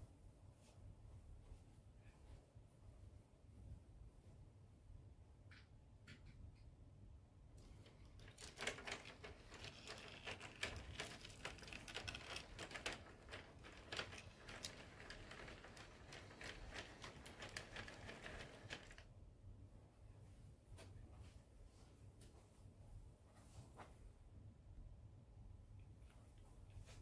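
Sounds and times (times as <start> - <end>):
paper crinkling: 7.8 - 19.0
model train clicking: 8.2 - 19.0.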